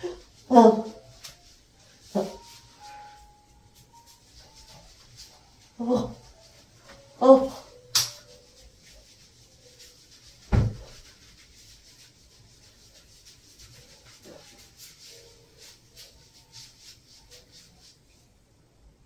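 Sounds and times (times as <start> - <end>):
feet rubbing on clothing: 0.0 - 18.3
low thump: 10.5 - 10.9.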